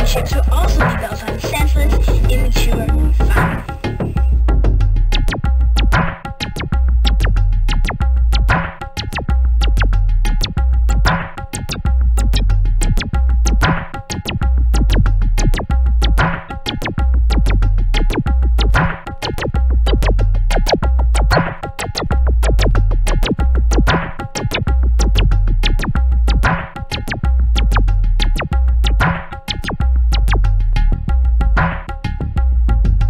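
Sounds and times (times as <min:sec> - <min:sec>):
electronic ambient music: 0:00.0 - 0:04.5.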